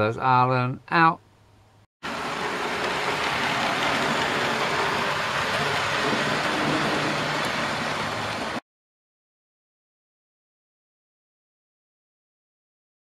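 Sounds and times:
model train wheels rattling on rail: 0:02.1 - 0:08.6.

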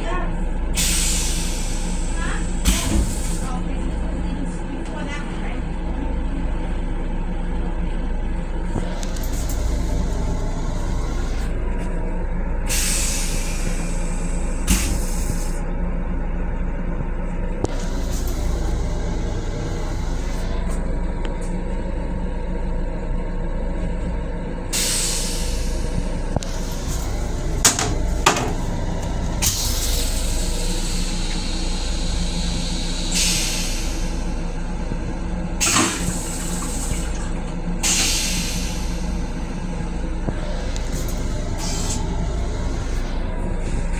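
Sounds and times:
steady low hum: 0:00.0 - 0:43.9
train rumble: 0:00.0 - 0:43.9
toilet flushing hiss: 0:24.8 - 0:34.3, 0:35.6 - 0:39.2.

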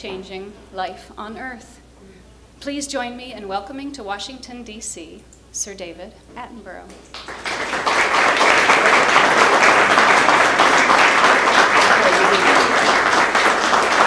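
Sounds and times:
audience applauding: 0:07.1 - 0:14.0.

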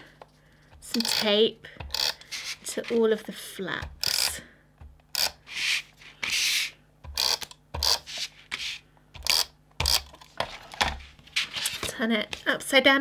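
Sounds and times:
tape runner rasping on cardstock: 0:07.1 - 0:10.2.

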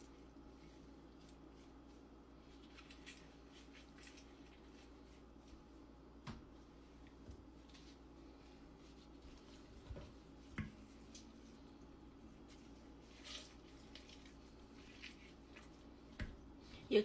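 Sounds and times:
wet squishing and rubbing: 0:00.0 - 0:05.9, 0:06.9 - 0:16.6
steady low hum: 0:00.0 - 0:17.0.

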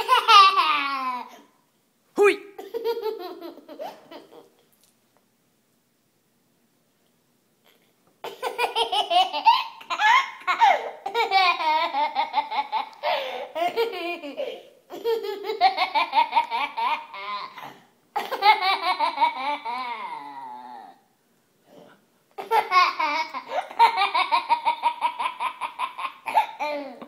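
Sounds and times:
toddler laughing: 0:00.0 - 0:01.5, 0:02.6 - 0:04.6, 0:08.2 - 0:21.0, 0:22.4 - 0:27.0.

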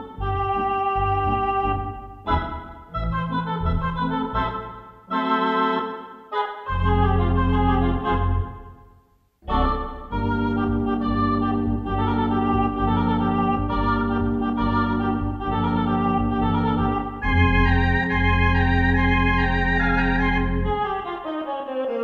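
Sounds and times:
theatre organ chords: 0:00.0 - 0:21.5.

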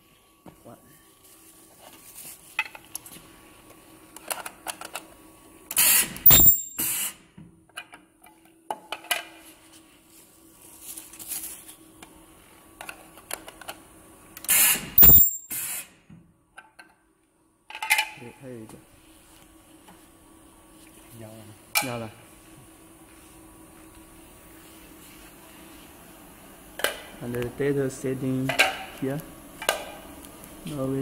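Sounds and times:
plastic welder hissing burst: 0:05.7 - 0:07.2, 0:14.4 - 0:16.0
piercing high whistle: 0:06.2 - 0:07.0, 0:15.0 - 0:15.6.

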